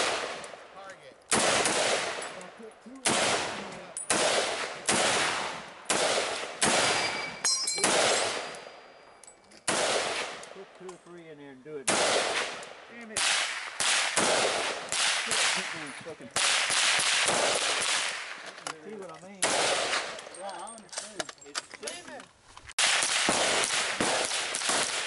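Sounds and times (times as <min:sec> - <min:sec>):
rifle shots with echo: 0:00.0 - 0:08.9, 0:09.6 - 0:10.8, 0:11.8 - 0:18.5, 0:19.4 - 0:20.3, 0:22.8 - 0:25.0.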